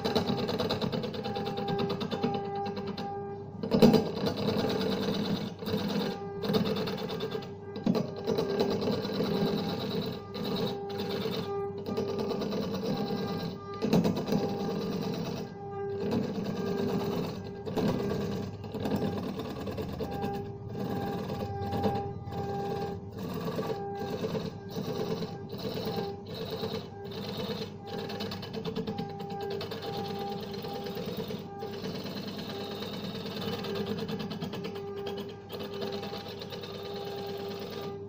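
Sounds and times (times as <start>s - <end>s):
chisel scraping spinning wood: 0.0s - 38.0s
wood lathe motor humming: 0.0s - 38.0s.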